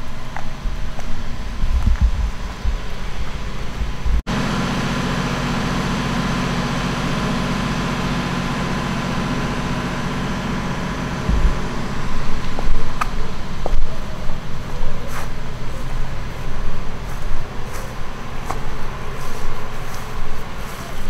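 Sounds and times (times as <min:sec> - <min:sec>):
wind rumbling on microphone: 0:00.0 - 0:04.2, 0:11.2 - 0:18.4
low mechanical hum: 0:00.0 - 0:21.0.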